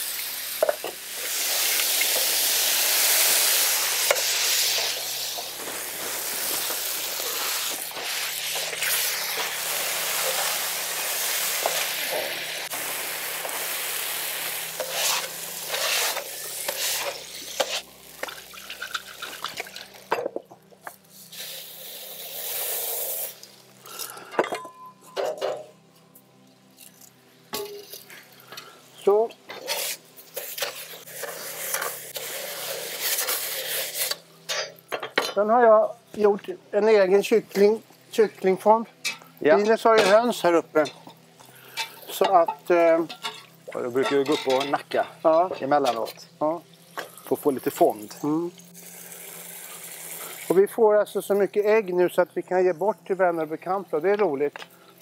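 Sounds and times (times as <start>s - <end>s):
food sizzling on griddle: 0.0s - 20.2s, 21.0s - 24.0s, 29.5s - 35.1s, 45.9s - 50.6s
spatula scraping steel: 14.8s - 17.9s.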